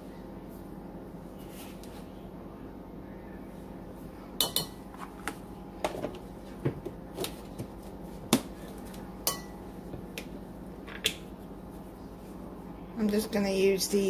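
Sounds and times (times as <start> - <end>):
steady low hum: 0.0 - 14.0
kitchen utensils clinking: 4.4 - 4.8.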